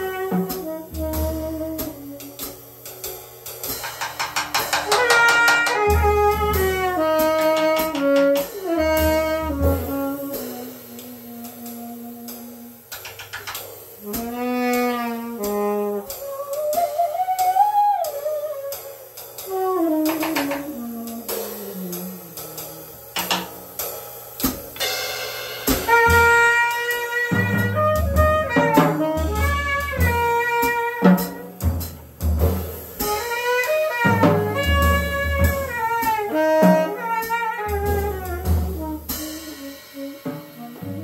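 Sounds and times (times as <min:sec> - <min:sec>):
saxophone playing jazz: 0:00.0 - 0:02.9, 0:04.4 - 0:23.8, 0:25.7 - 0:41.0
heavy low drum hits: 0:00.0 - 0:12.6, 0:24.4 - 0:41.0.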